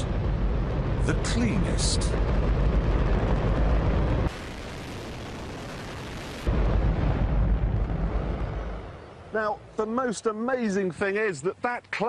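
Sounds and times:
rocket engine deep rumbling: 0.0s - 9.4s.

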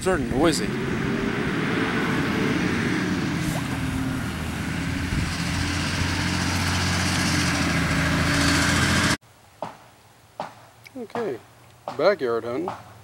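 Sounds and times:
large truck driving past: 0.0s - 9.2s.

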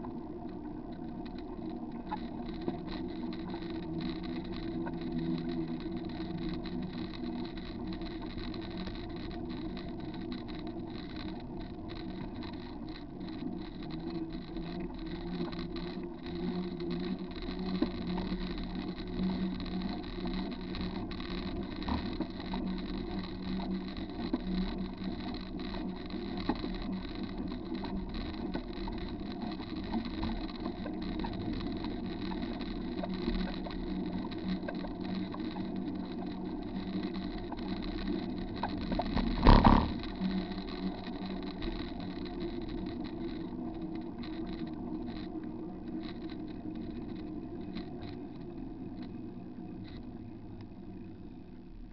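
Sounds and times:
small rattles: 0.0s - 50.2s
bicycle tyres on wet pavement: 1.1s - 48.5s
wind noise: 38.8s - 40.1s.

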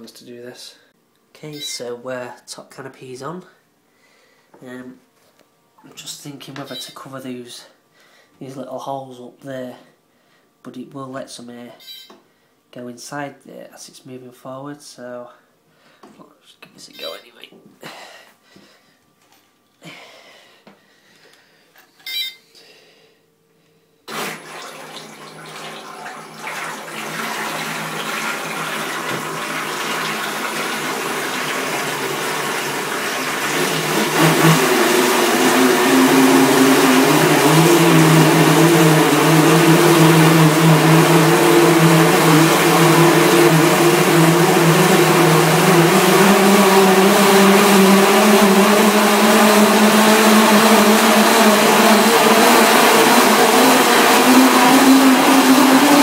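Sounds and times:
propellers churning water: 24.1s - 56.0s
toy boat motor hum: 33.6s - 56.0s.

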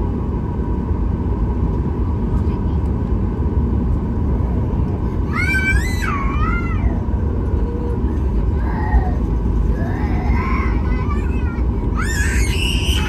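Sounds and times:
aircraft cabin rumble: 0.0s - 13.0s
child screaming: 5.3s - 7.1s, 7.7s - 13.0s
child crying: 5.3s - 13.0s.

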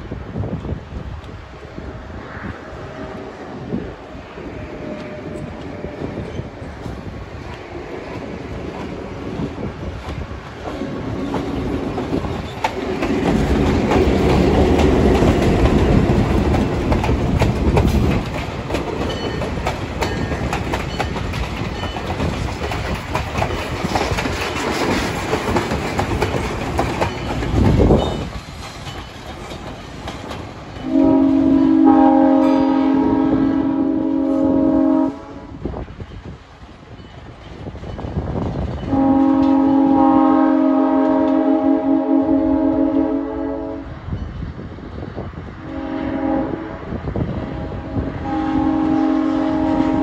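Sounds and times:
diesel locomotive engine: 0.0s - 50.0s
train air horn: 4.4s - 6.2s, 30.8s - 35.6s, 38.9s - 44.0s, 45.6s - 50.0s
train wheels clicking over rail joints: 4.8s - 31.2s.

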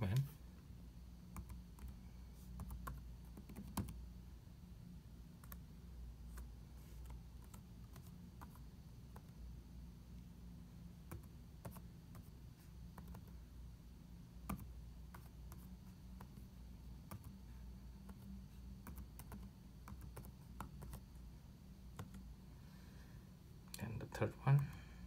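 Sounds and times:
steady low hum: 0.0s - 25.0s
laptop keyboard typing: 1.3s - 4.0s, 5.4s - 5.7s, 6.3s - 9.4s, 11.0s - 13.4s, 14.4s - 17.4s, 18.0s - 21.1s, 21.9s - 22.3s.

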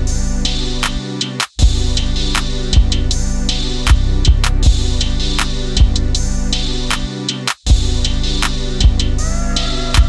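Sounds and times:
music with steady beat: 0.0s - 10.0s.

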